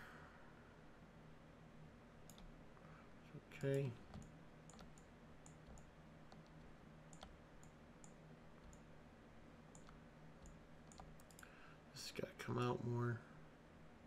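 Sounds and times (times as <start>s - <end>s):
faint low hum: 0.0s - 14.0s
faint computer mouse clicks: 2.3s - 2.5s, 3.6s - 8.9s, 9.7s - 11.5s.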